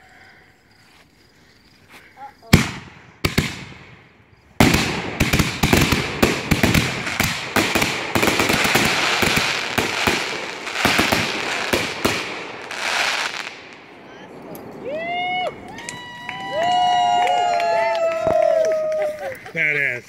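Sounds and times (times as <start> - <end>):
firework shells banging: 2.4 - 16.9
firework crackling: 2.5 - 19.6.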